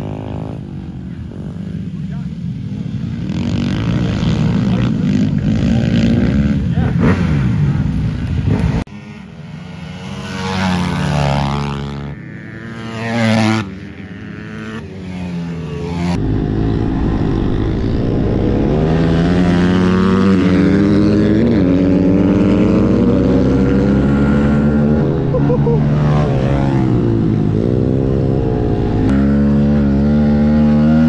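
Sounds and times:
pit bike engine close up: 0.0s - 31.0s
pit bike engines revving: 0.0s - 31.0s.

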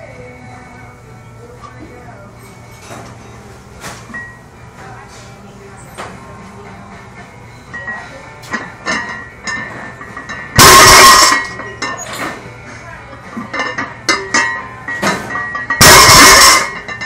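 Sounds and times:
iron plates clinking: 7.2s - 17.0s.

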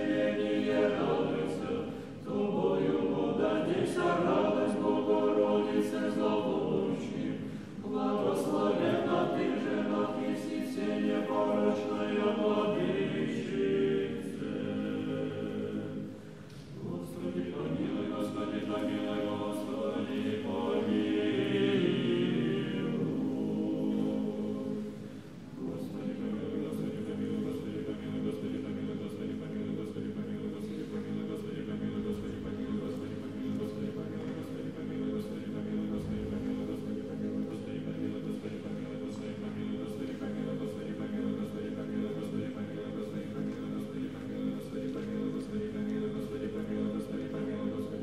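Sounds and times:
choir chanting unaccompanied: 0.0s - 48.0s.

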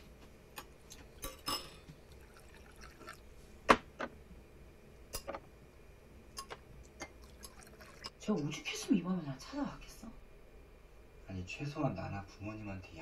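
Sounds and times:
spoons clinking against bowls: 0.6s - 1.9s, 6.4s - 8.1s.

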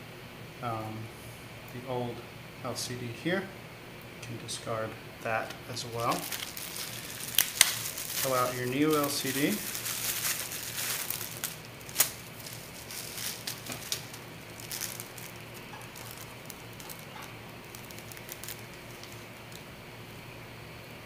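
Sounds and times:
bubble wrap crinkling: 5.3s - 20.1s.

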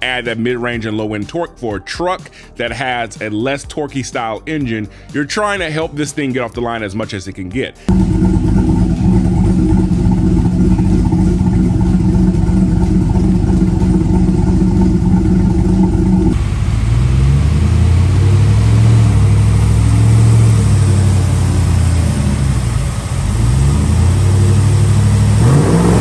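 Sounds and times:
engine revving on dyno: 7.9s - 26.0s
engine running through exhaust: 7.9s - 26.0s.

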